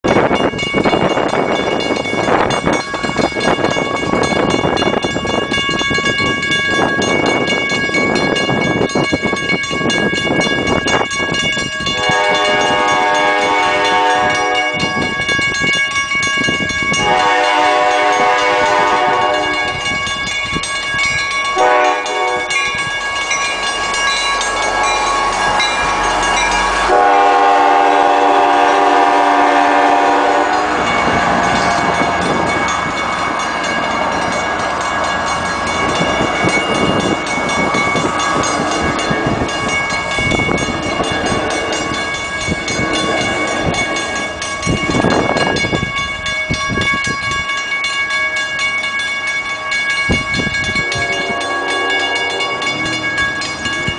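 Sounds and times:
crossing warning bell ringing: 0:00.0 - 0:53.9
train horn blasts: 0:11.9 - 0:15.1, 0:17.0 - 0:19.9, 0:21.6 - 0:22.7, 0:24.6 - 0:32.2, 0:50.7 - 0:53.4.

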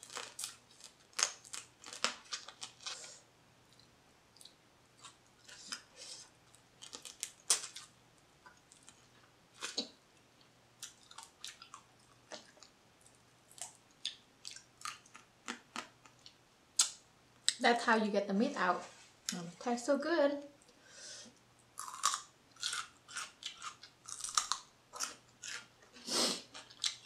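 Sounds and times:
sucking and chewing: 0:08.5 - 0:17.6, 0:21.7 - 0:27.0.

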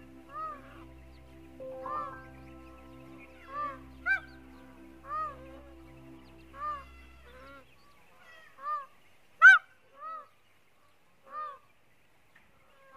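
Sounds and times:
peafowl honking calls: 0:00.0 - 0:10.3.

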